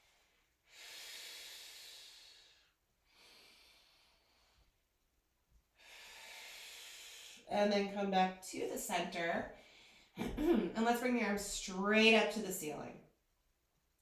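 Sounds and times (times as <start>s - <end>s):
woman breathing softly: 0.0s - 4.8s, 5.8s - 7.5s.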